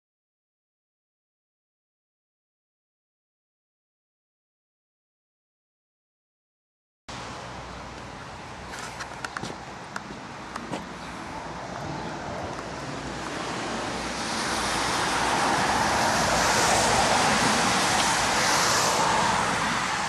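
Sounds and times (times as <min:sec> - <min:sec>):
tyres hissing on wet road: 0:07.1 - 0:20.0.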